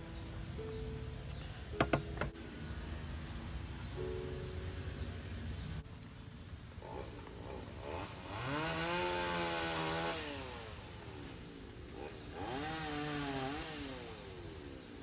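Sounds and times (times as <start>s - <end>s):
small engine revving: 6.7s - 15.0s.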